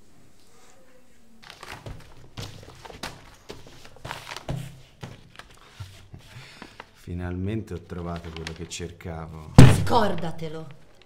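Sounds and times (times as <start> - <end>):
paper rustling: 1.4 - 9.1
knocks and thunks: 9.6 - 10.4.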